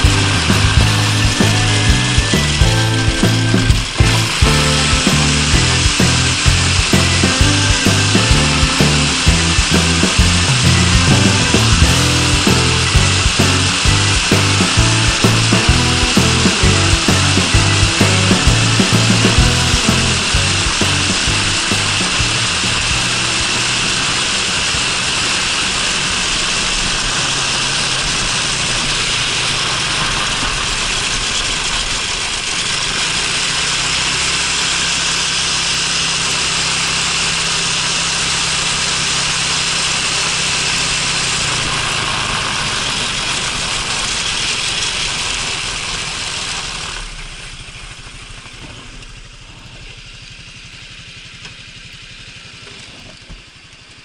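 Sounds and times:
wind and road noise: 0.0s - 49.5s
scooter engine running: 0.0s - 54.0s.

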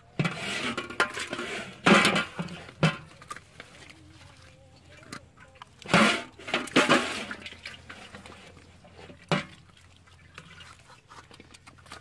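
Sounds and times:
water splashing and dripping: 0.1s - 12.0s.

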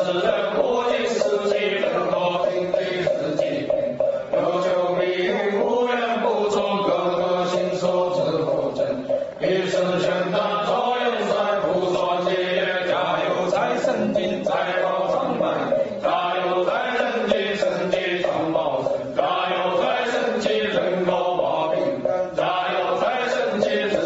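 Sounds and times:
musical backing: 0.0s - 24.0s
ritual chanting: 0.0s - 24.0s.

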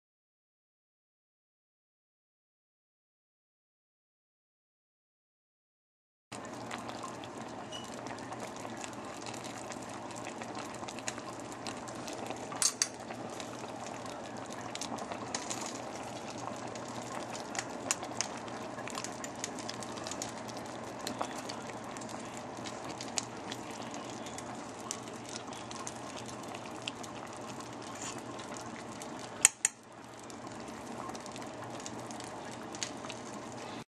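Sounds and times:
stew bubbling in pot: 6.4s - 33.8s
metal spoon clinking on pot: 12.6s - 12.9s.

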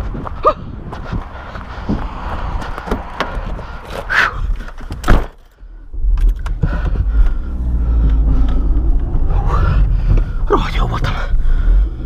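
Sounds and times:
car engine rumbling: 0.0s - 12.0s
car door slamming: 5.0s - 5.4s.

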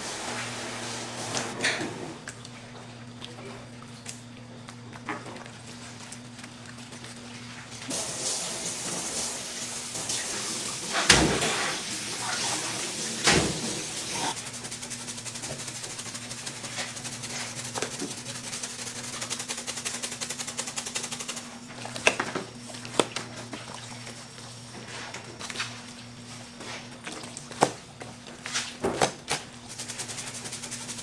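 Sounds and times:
steady low hum: 12.1s - 31.0s.

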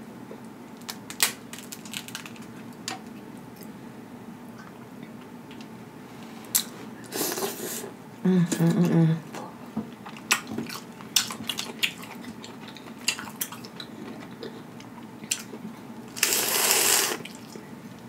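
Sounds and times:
low steady hum: 0.0s - 18.0s
shells cracking and snapping: 0.8s - 3.0s
wet slurp: 16.2s - 17.6s.

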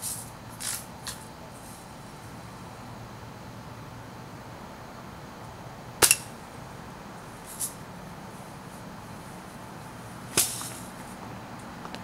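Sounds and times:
bb gun shot cracking: 6.0s - 6.3s.

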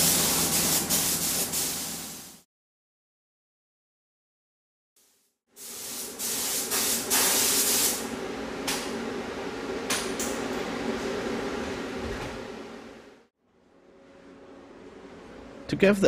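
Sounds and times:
compressed air hissing from air gun: 0.0s - 2.4s, 5.6s - 8.1s.

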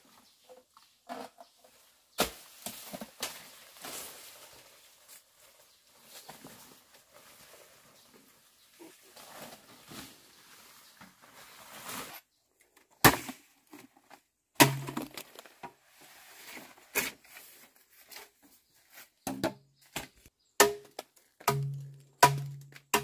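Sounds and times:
leaves and brush rustling: 0.0s - 12.4s, 15.1s - 19.2s
machete chopping bamboo: 13.0s - 13.5s, 14.6s - 15.2s, 20.6s - 23.0s.

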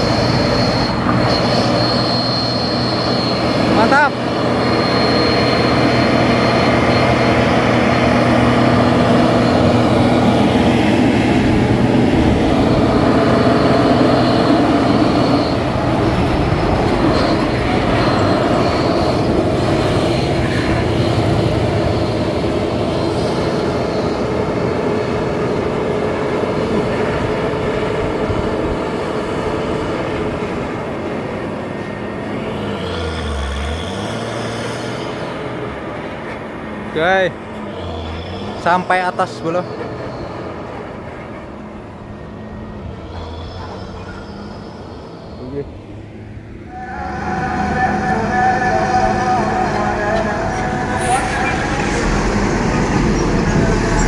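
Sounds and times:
motorcycles passing: 0.0s - 42.1s
truck diesel engine droning: 0.0s - 54.0s.

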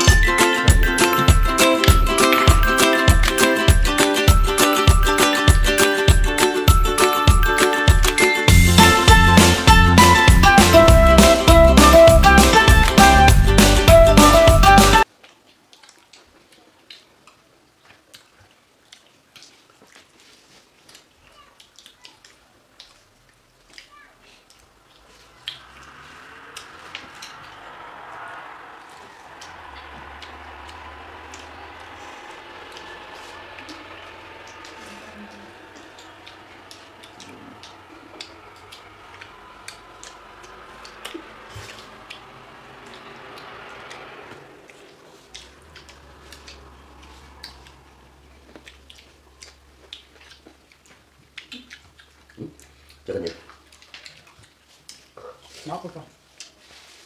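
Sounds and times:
chewing: 15.1s - 57.0s
fruit being peeled by hand: 15.1s - 57.0s.

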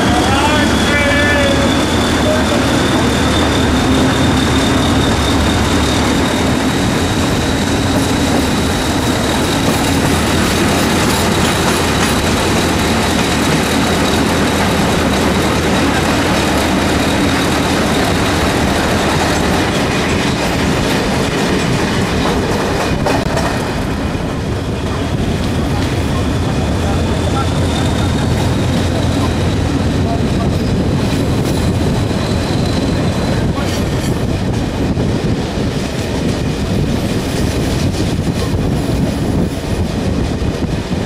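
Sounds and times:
high wheel squeal: 0.0s - 20.8s, 25.7s - 34.2s
train rumbling: 0.0s - 41.0s
wheels clattering over rail joints: 3.0s - 23.9s.

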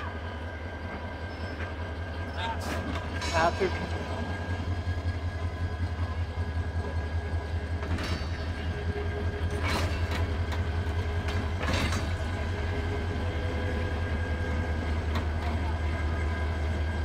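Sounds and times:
diesel locomotive idling: 0.0s - 17.0s.

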